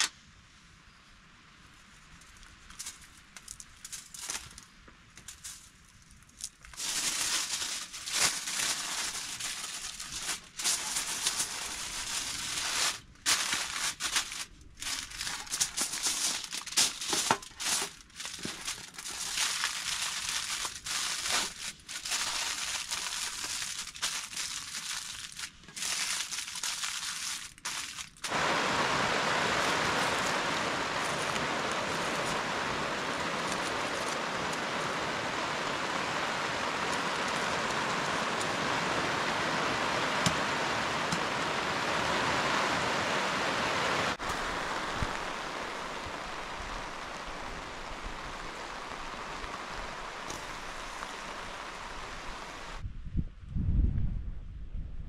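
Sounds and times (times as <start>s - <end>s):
crinkling and rustling: 1.8s - 28.7s, 29.3s - 39.2s
heavy rain hissing: 27.6s - 52.8s.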